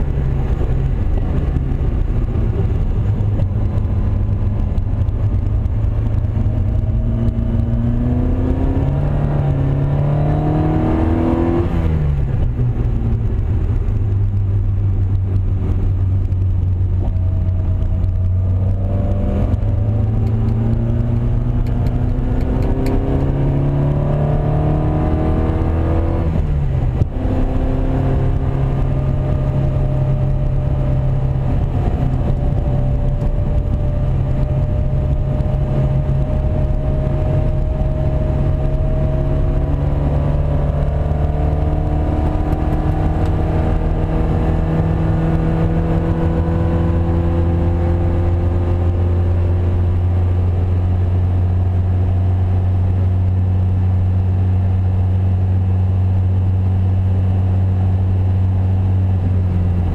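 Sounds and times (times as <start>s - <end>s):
race car engine running hard: 0.0s - 59.9s.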